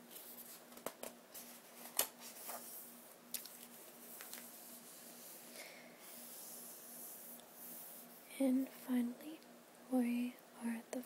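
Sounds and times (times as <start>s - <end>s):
soft paper brushing: 0.0s - 0.7s, 1.3s - 8.2s
book pages being handled: 0.1s - 5.3s.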